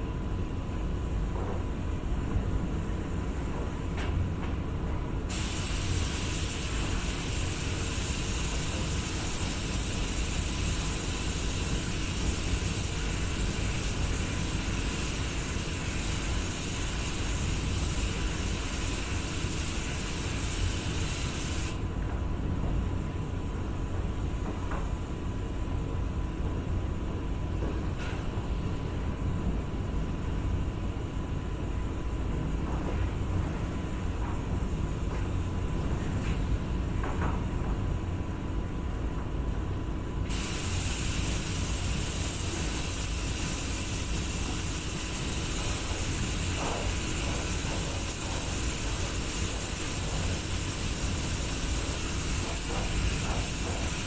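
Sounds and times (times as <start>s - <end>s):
paint spray gun hissing: 5.3s - 21.8s, 40.3s - 54.0s.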